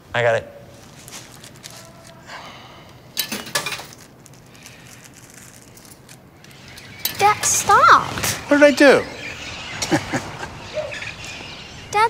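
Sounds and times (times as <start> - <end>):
plastic wrapper crinkling: 0.8 - 2.2, 3.9 - 6.3.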